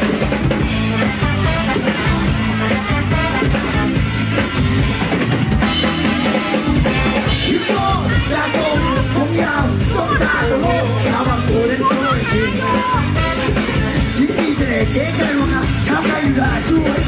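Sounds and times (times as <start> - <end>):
loud dance music: 0.0 - 17.0
person singing: 7.3 - 17.0.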